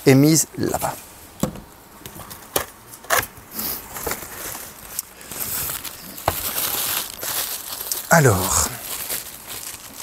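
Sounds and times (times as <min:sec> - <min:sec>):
packaging rustling: 0:03.8 - 0:10.0.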